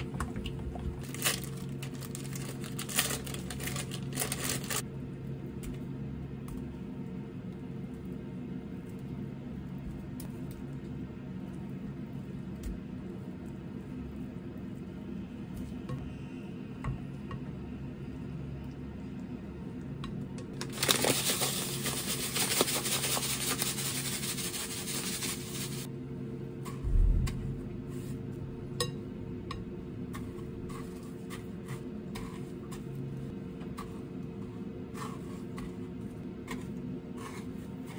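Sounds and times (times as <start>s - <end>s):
breadcrumbs pouring from plastic bag: 1.0s - 4.8s, 20.7s - 25.9s.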